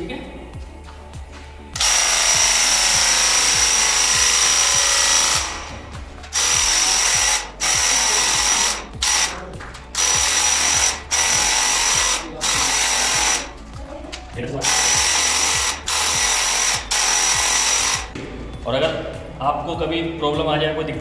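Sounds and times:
paint sprayer hissing and whining: 0:01.8 - 0:13.6, 0:14.6 - 0:18.2.

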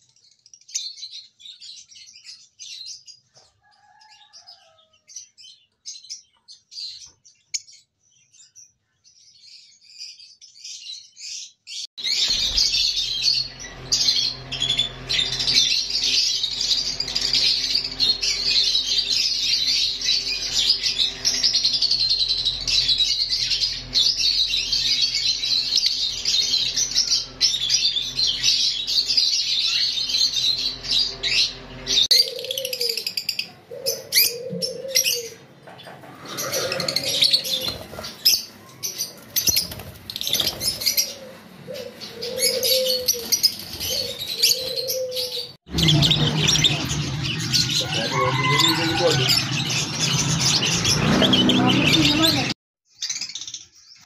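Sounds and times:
lovebirds chirping: 0:00.0 - 0:54.0
steady low hum: 0:12.1 - 0:32.1.

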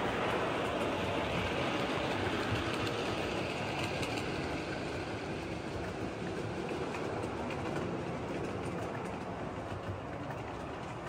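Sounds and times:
model train wheels and motors rumbling: 0:00.0 - 0:11.0
faint clicks: 0:02.2 - 0:04.4.

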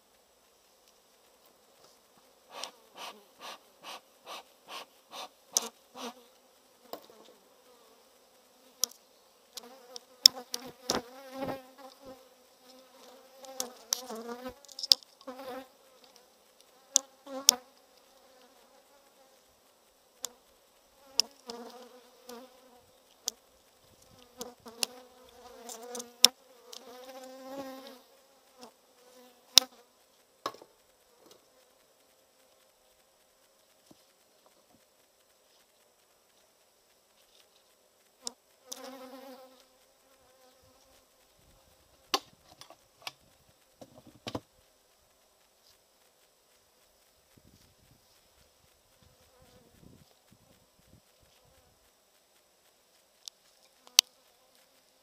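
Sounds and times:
bees buzzing: 0:02.3 - 0:19.5
smoker bellows puffs: 0:02.5 - 0:06.2.

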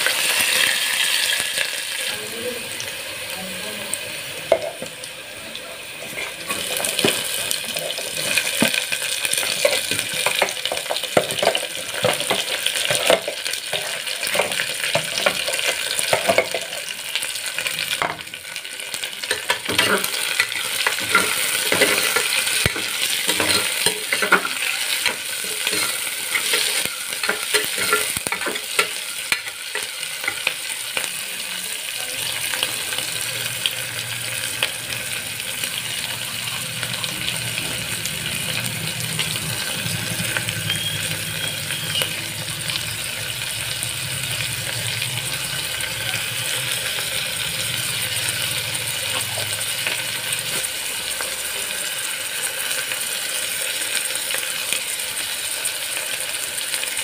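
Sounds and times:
onions sizzling in hot oil: 0:00.0 - 0:57.0
metal spoon scraping a pot: 0:19.3 - 0:30.5.

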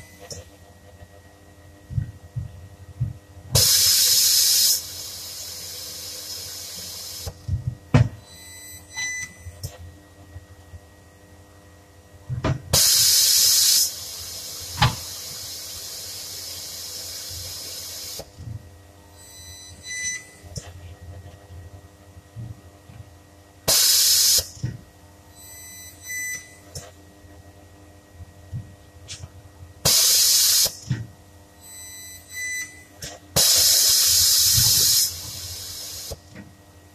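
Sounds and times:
air hiss bursts: 0:03.6 - 0:07.3, 0:12.8 - 0:18.2, 0:23.7 - 0:24.5, 0:29.9 - 0:30.8, 0:33.4 - 0:36.2.

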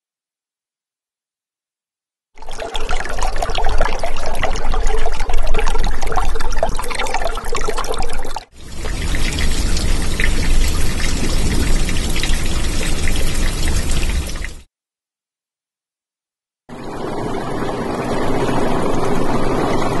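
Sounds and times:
running water: 0:02.4 - 0:14.6.

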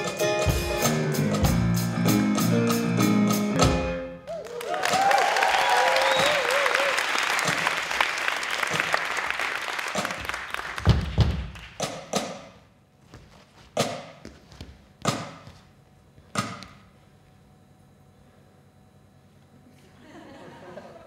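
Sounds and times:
audience applause: 0:04.3 - 0:11.8.

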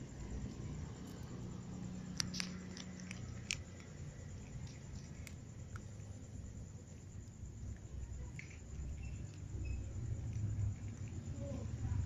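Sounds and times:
cats crunching dry kibble: 0:02.0 - 0:06.2, 0:10.1 - 0:11.4.

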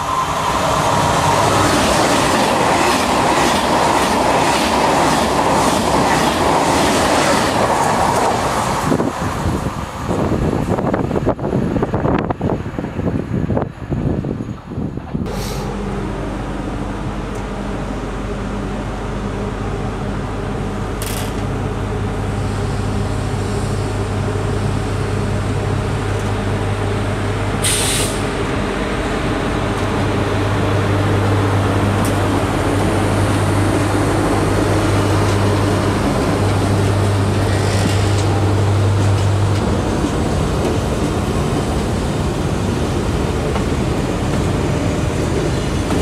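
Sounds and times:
electric locomotive humming: 0:00.0 - 0:46.0
compressed air hisses: 0:27.6 - 0:28.2.

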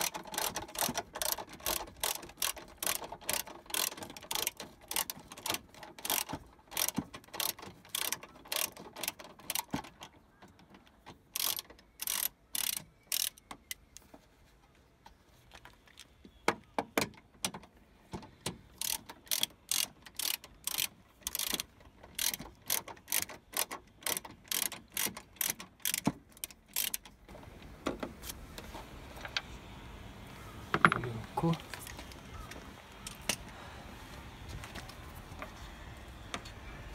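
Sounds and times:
ratchet wrench clicking: 0:00.0 - 0:10.0, 0:11.3 - 0:13.8, 0:18.7 - 0:27.1.

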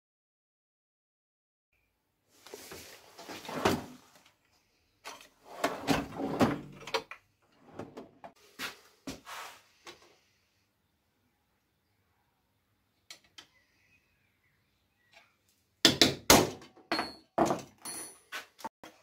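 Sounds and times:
metal drawers sliding: 0:05.4 - 0:07.0, 0:07.6 - 0:08.4
tools clattering: 0:16.9 - 0:18.6.

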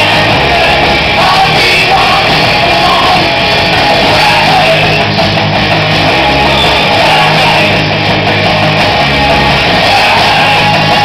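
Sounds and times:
bass guitar: 0:00.0 - 0:11.0
drum kit: 0:00.0 - 0:11.0
electric guitar: 0:00.0 - 0:11.0
shouted sung lead vocal: 0:00.0 - 0:11.0.

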